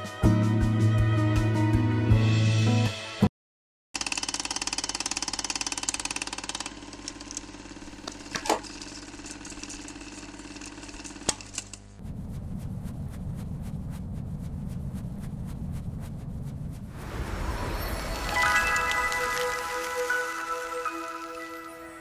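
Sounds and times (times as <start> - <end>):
pulsing mechanical drone: 11.9 - 18.2
short sweep: 12.0 - 18.6.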